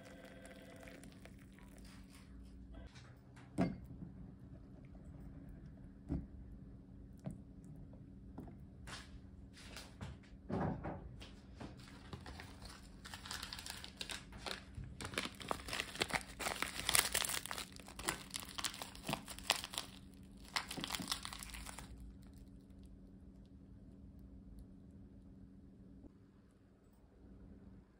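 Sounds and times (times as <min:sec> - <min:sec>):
seaweed and foil crinkling: 0:11.8 - 0:22.5.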